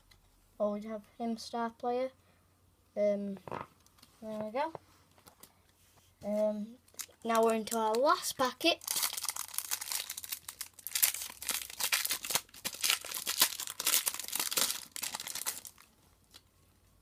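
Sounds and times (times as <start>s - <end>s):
foil packet crinkling: 6.9s - 8.2s, 8.8s - 16.4s.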